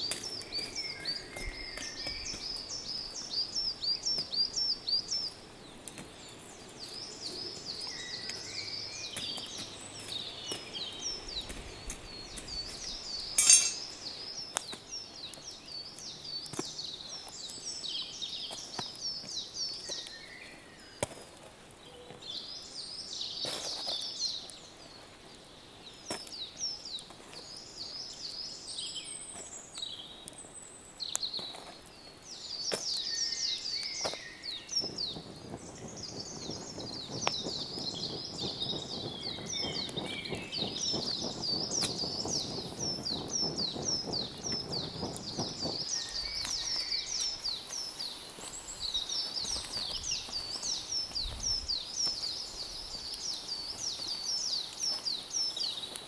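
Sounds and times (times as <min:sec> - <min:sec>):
small birds chirping: 0:00.0 - 0:56.0
metal tongs clinking on stones: 0:13.4 - 0:14.0.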